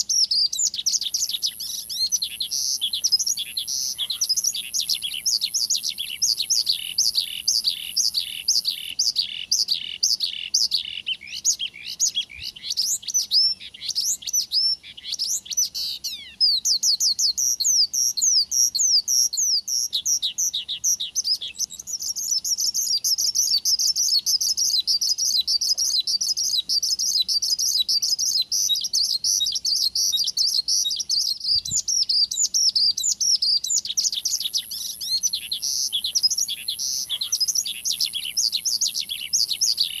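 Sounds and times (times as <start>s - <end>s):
bush lark singing chirps: 0.0s - 40.0s.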